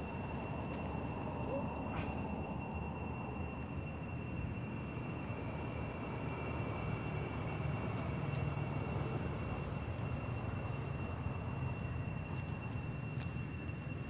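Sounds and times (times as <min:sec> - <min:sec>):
faint high-pitched whine: 0:00.0 - 0:14.0
low outdoor rumble: 0:00.0 - 0:14.0.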